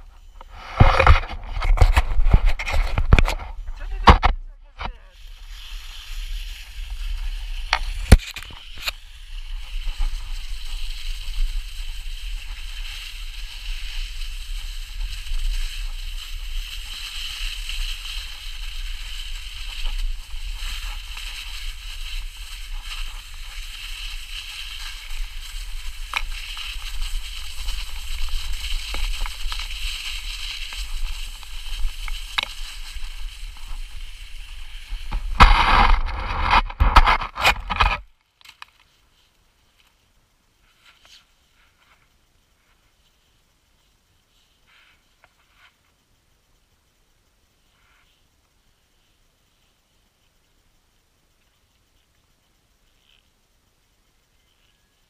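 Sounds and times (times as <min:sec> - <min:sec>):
sled scraping over snow: 0:00.0 - 0:38.0.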